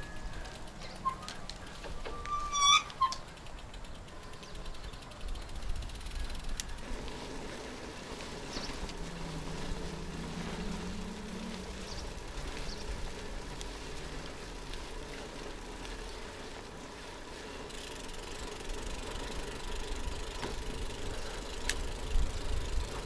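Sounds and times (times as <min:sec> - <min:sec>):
road noise: 0:00.0 - 0:23.0
vehicle engine hum: 0:00.0 - 0:23.0
wind rumbling on microphone: 0:05.2 - 0:15.2, 0:20.1 - 0:23.0.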